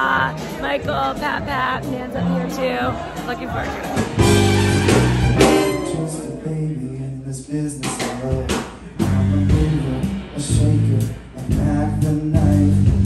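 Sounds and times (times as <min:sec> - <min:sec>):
amplified backing music: 0:00.0 - 0:13.0
man singing rock and roll: 0:05.7 - 0:13.0.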